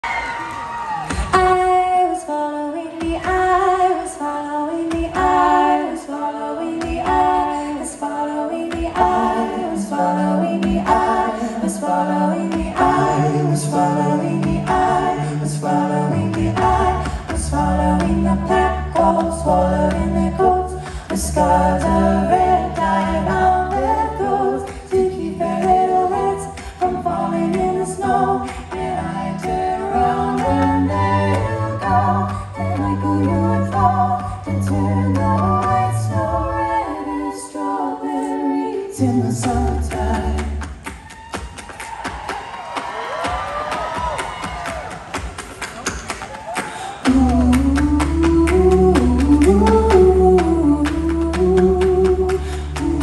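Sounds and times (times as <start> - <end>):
a cappella group singing: 0.9 - 42.4, 46.4 - 53.0
deep bass voice singing: 47.1 - 53.0.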